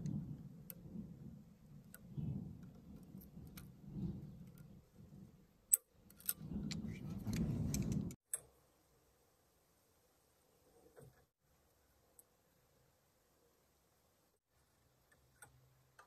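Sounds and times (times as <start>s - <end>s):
low uneven rumble: 6.3s - 8.2s.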